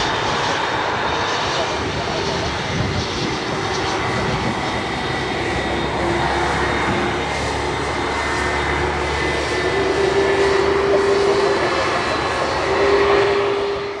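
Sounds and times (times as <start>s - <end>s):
jet engines roaring with whine: 0.0s - 14.0s.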